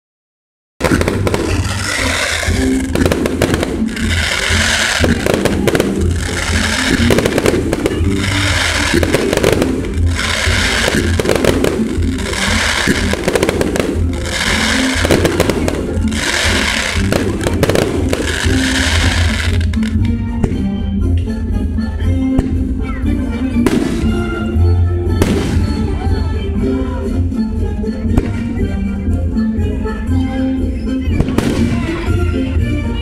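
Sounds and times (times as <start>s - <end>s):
fireworks crackling and popping: 0.8s - 20.6s, 23.6s - 24.6s, 25.2s - 26.2s, 31.1s - 32.4s.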